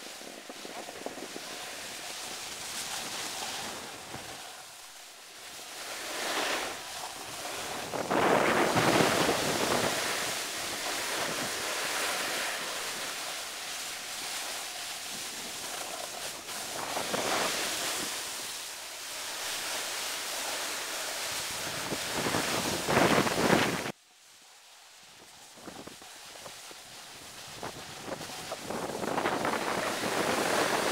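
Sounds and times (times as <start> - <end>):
wind on microphone: 6.3 - 13.3, 21.3 - 23.9, 25.5 - 30.9.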